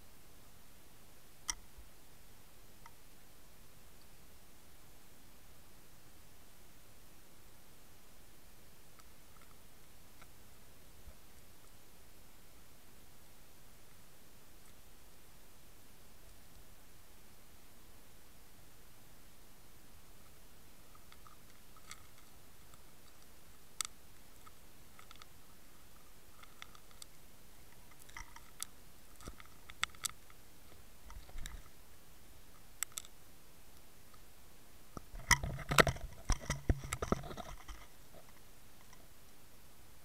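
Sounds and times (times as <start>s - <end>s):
underwater clicks and crunches: 20.9s - 25.3s, 26.4s - 31.8s, 32.5s - 33.2s, 35.0s - 39.0s.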